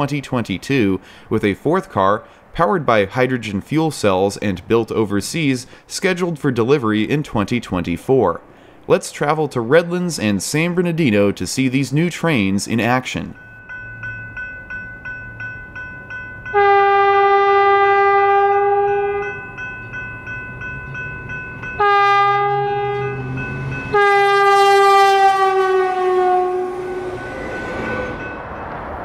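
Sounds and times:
rush of passing train: 7.4s - 10.7s, 13.1s - 29.0s
bell dinging: 13.3s - 16.8s, 18.7s - 24.2s
train horn blasts: 16.5s - 19.4s, 21.8s - 28.4s.

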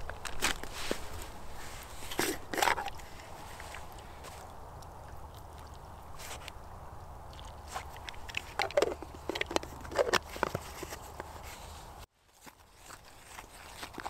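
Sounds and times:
footsteps crunching through snow: 0.0s - 4.5s.

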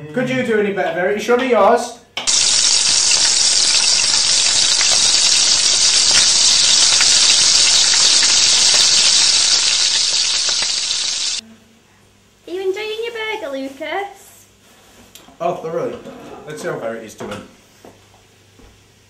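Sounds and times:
sauce sizzling in a wok: 2.3s - 11.4s.

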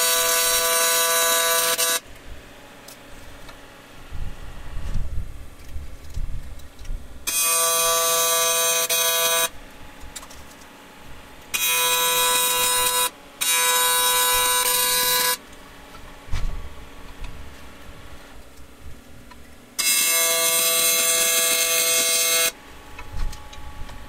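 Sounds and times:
tig welding arc buzzing: 0.0s - 4.1s, 7.2s - 15.9s, 19.8s - 23.8s.

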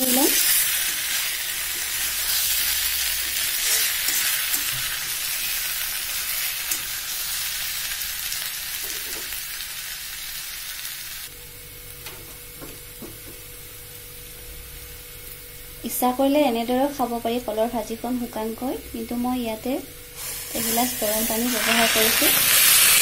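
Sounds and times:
food sizzling in hot oil: 0.0s - 11.4s, 20.0s - 23.0s
spatula stirring in a pan: 0.4s - 5.6s.

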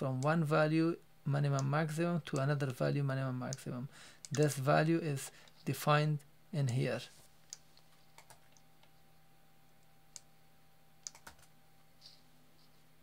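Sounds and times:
faint steady hum: 0.0s - 13.0s
computer keys clicking: 3.5s - 4.5s, 7.5s - 8.9s, 11.0s - 11.5s.

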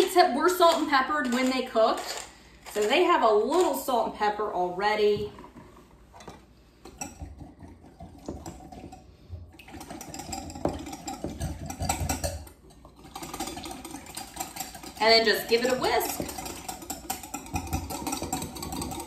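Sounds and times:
whisk rattling in glass bowl: 6.8s - 19.0s.

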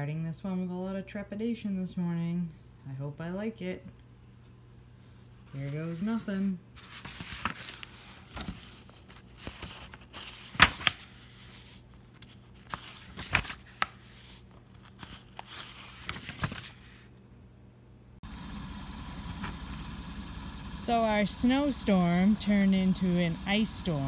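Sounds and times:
book pages turning: 4.4s - 17.1s.

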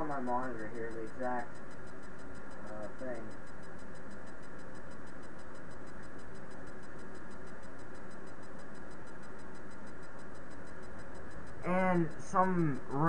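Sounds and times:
faint rapid ticking: 0.0s - 13.0s
microphone hiss and hum: 0.0s - 13.0s.

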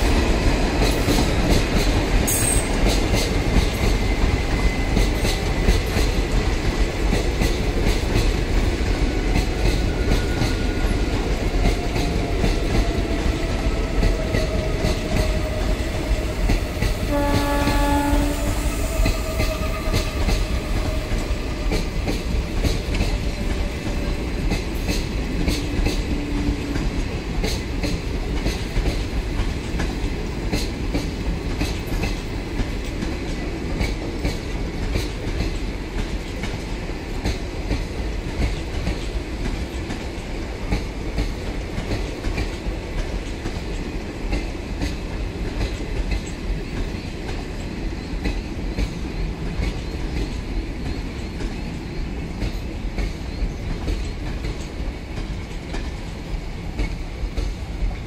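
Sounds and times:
train wheels rumbling on rails: 0.0s - 58.0s
train horn: 16.8s - 21.3s.

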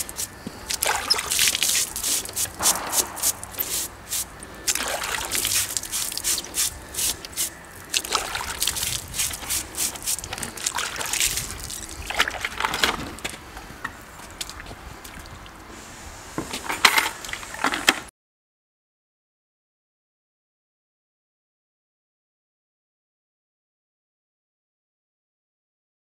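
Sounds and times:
water splashing and dripping: 0.0s - 13.0s.

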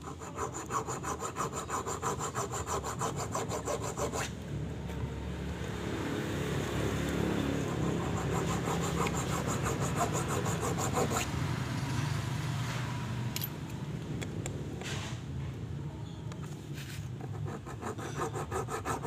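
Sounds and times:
hacksaw scraping on metal: 0.0s - 4.3s, 7.6s - 11.4s, 17.2s - 19.0s.

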